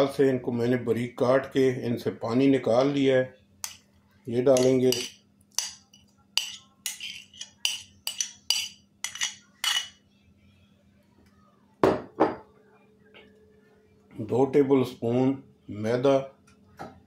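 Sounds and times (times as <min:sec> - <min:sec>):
spoon scraping ceramic plate: 0:04.5 - 0:10.0.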